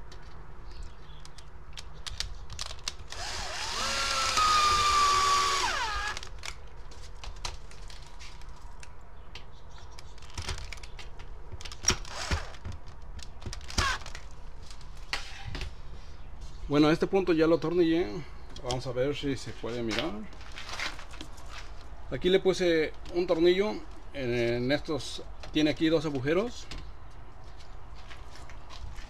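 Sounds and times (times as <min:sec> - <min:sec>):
cordless drill motor whining: 0:03.1 - 0:06.3.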